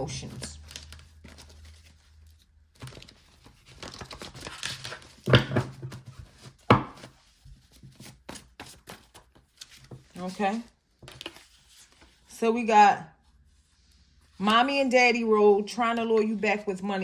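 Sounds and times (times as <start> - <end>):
paper rustling and shuffling: 0.0 - 12.3.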